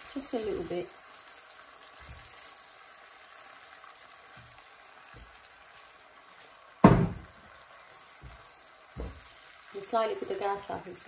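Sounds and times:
vegetables sizzling in oil: 0.0s - 11.0s
wooden spatula knocking: 6.8s - 7.3s, 8.2s - 9.3s.

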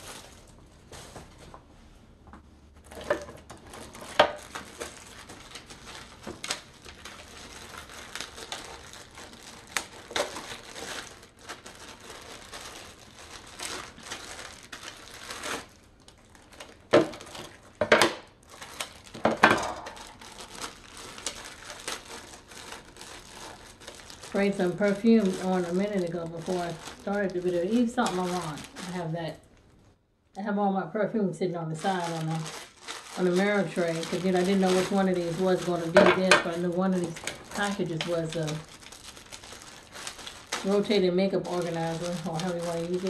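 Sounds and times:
plastic bag crinkling: 0.0s - 0.6s, 2.8s - 29.8s, 31.7s - 43.0s.

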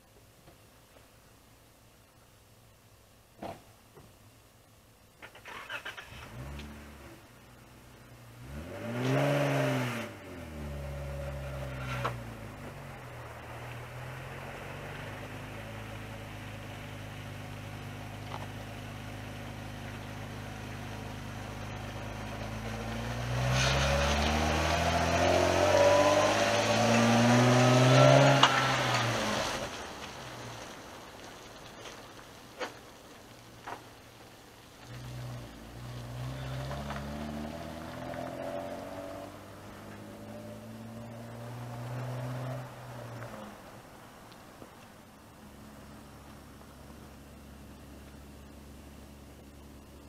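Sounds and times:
engine starting and idling: 5.2s - 6.7s
engine revving: 5.3s - 7.2s, 8.4s - 16.6s, 19.4s - 29.8s, 34.9s - 43.5s.

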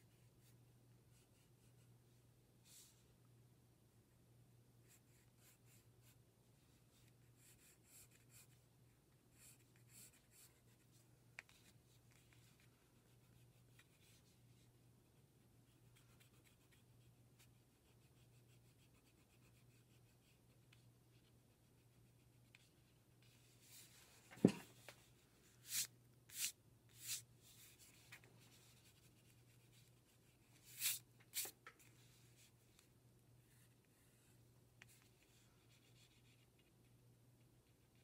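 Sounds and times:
pencil scratching on paper: 9.3s - 10.8s, 15.7s - 22.6s.

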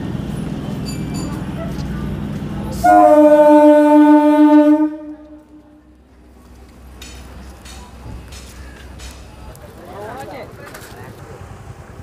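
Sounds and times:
train horn blast: 2.8s - 5.9s.

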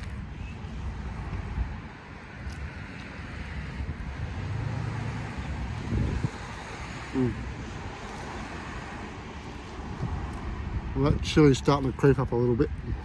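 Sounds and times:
vehicle passing: 0.0s - 11.0s
wind on microphone: 0.0s - 11.6s, 12.5s - 13.0s
road traffic rumble: 0.0s - 13.0s.

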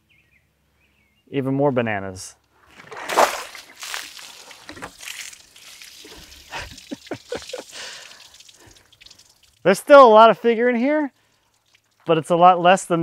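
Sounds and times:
water splashing on wood: 2.6s - 12.7s.

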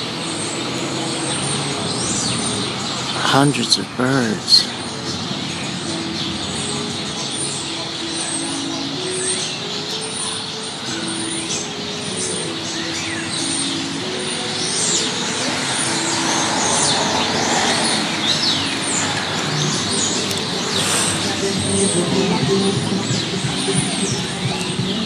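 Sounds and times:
city traffic hum: 0.0s - 25.0s
flock of small birds chirping: 0.0s - 25.0s.

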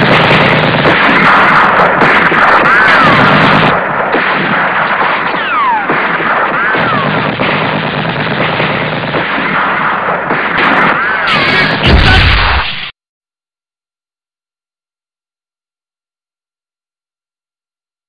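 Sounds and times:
gunfire: 0.0s - 12.9s
machine-gun fire: 0.0s - 12.9s.

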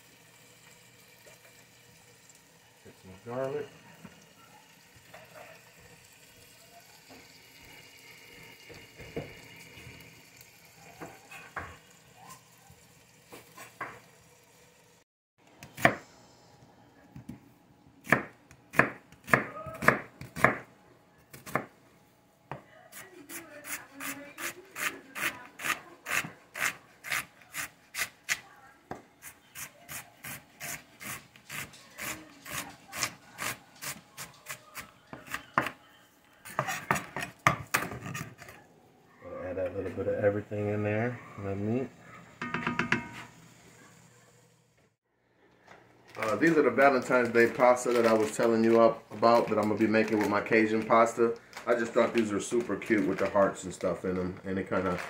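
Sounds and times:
knife chopping onion on plastic board: 18.0s - 20.7s.

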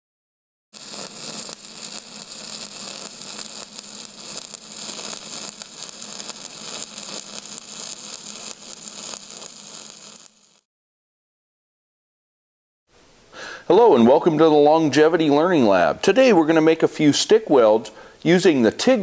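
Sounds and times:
crackling hiss: 0.8s - 10.7s.

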